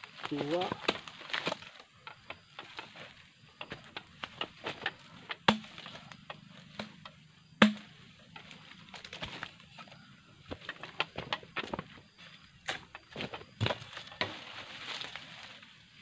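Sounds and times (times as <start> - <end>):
heavy chopping blows: 4.3 - 8.0.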